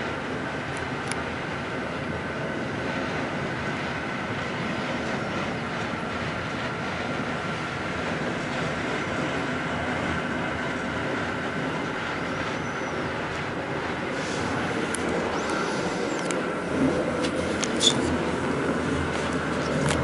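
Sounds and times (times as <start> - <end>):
train coach rolling on track: 0.0 - 20.0
faint high squeaks: 17.8 - 18.1.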